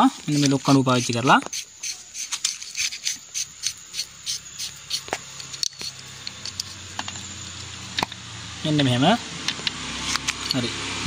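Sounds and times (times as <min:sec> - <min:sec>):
metal shaft scraping: 0:00.0 - 0:09.2
sharp metallic clicks: 0:00.2 - 0:08.2.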